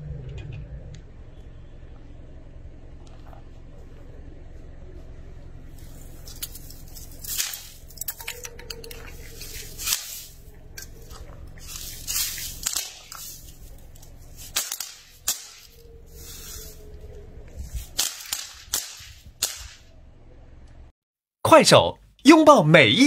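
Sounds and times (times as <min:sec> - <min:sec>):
low steady hum: 0:00.0 - 0:20.9
plastic crackling under car: 0:05.7 - 0:17.1.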